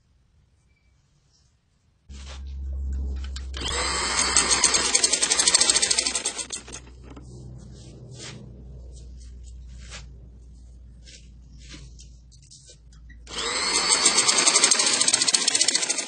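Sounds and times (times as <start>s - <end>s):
sewing machine motor hum: 2.1s - 7.7s, 13.2s - 16.0s.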